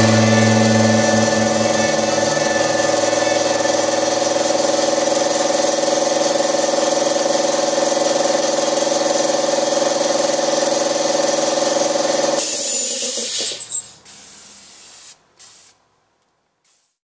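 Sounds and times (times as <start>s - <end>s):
air compressor humming: 0.0s - 15.0s
spray gun blowing air: 12.4s - 15.8s, 16.7s - 17.0s.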